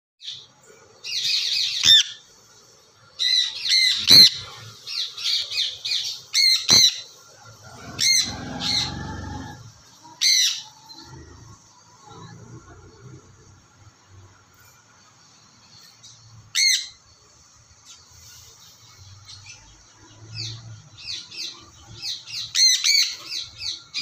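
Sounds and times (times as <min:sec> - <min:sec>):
parrots squawking: 0:01.5 - 0:02.2, 0:03.2 - 0:04.4, 0:05.2 - 0:07.0, 0:07.6 - 0:11.2, 0:16.5 - 0:17.0.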